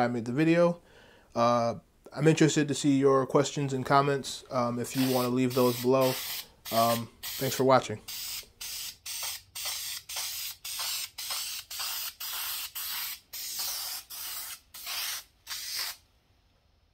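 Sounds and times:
spray paint can hissing: 5.0s - 16.0s.

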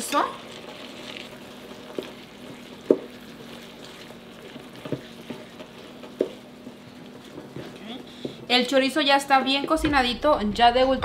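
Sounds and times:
sausage sizzling in a skillet: 0.0s - 8.4s
wooden spoon stirring: 0.5s - 8.4s.

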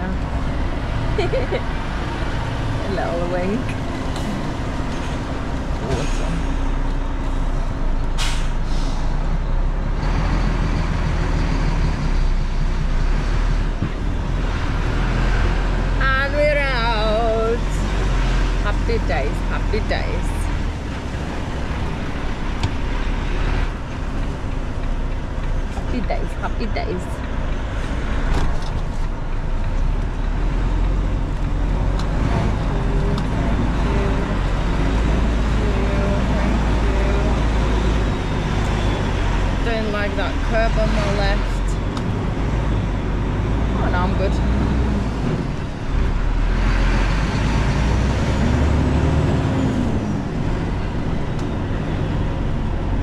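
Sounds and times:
lorry diesel engine running: 0.0s - 53.0s
road noise: 0.0s - 53.0s
air-brake hiss: 8.2s - 9.2s.

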